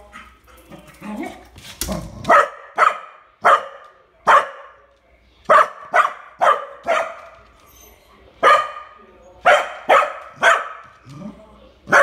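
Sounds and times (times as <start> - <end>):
small dog barking: 2.3 - 4.8, 5.5 - 7.2, 8.4 - 8.9, 9.5 - 10.8.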